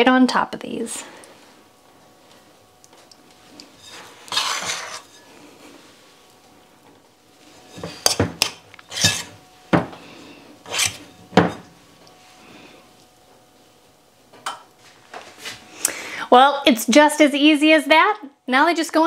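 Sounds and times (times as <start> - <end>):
spoon scraping a bowl: 3.8 - 5.4, 7.6 - 9.4, 10.7 - 11.6.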